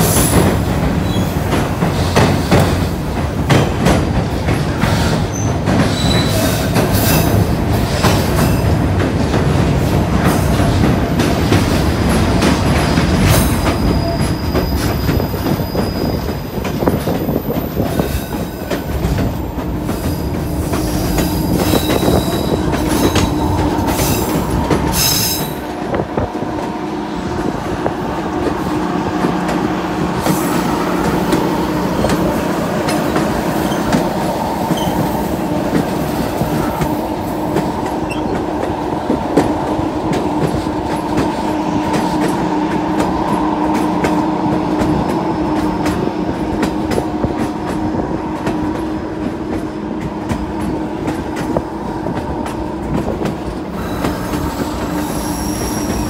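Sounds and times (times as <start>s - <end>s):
train wheels clattering on rails: 0.0s - 56.0s
high wheel squeal: 5.1s - 7.4s, 13.5s - 16.3s, 20.0s - 25.6s, 34.7s - 35.3s, 53.8s - 56.0s.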